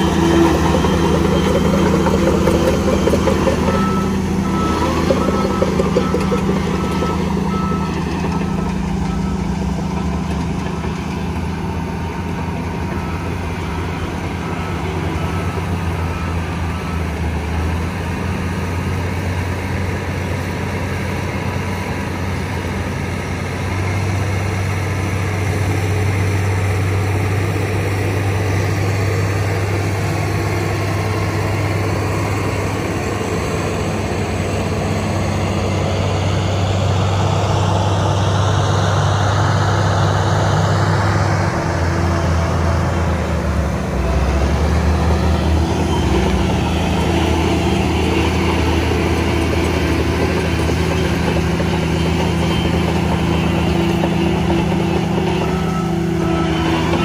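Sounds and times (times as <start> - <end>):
reversing alarm beeping: 0.0 - 18.8, 43.9 - 57.0
bulldozer diesel engine: 0.0 - 57.0.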